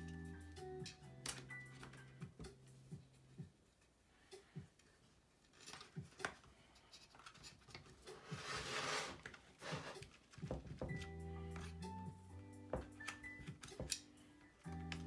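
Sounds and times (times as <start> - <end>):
rubbing scrape: 6.8 - 10.2.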